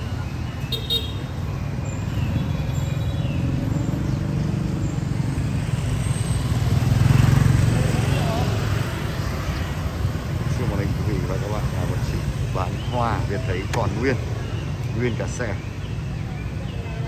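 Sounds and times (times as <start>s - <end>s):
traffic engines rumbling: 0.0s - 17.0s
vehicle passing close: 2.7s - 13.3s.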